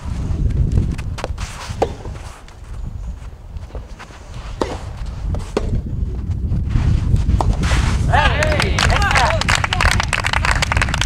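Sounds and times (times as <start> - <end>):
tennis ball hits: 4.6 - 5.8.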